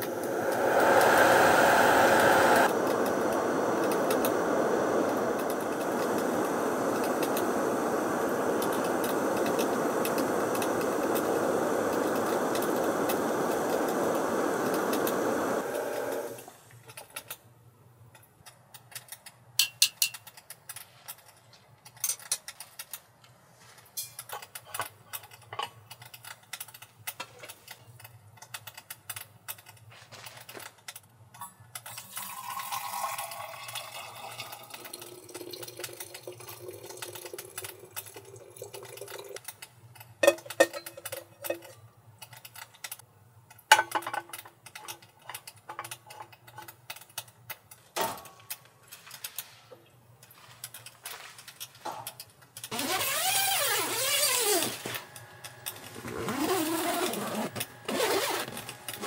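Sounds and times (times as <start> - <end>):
metal cookware clinking: 24.0 - 25.8, 40.2 - 41.9
water pouring into a bottle: 31.9 - 39.4.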